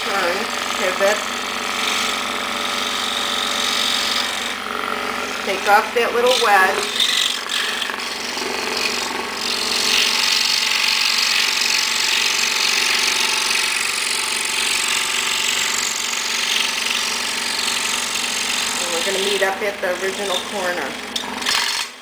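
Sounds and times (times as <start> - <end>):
scroll saw cutting wood: 0.0 - 22.0.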